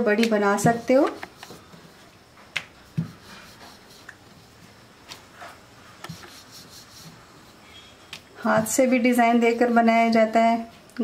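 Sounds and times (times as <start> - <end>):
rolling pin rubbing dough: 0.3 - 2.0, 2.8 - 7.7.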